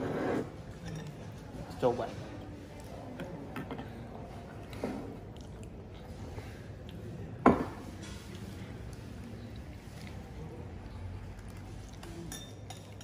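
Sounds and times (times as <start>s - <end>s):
cups clinking on saucers: 0.0s - 1.5s, 7.4s - 8.3s, 12.0s - 13.0s.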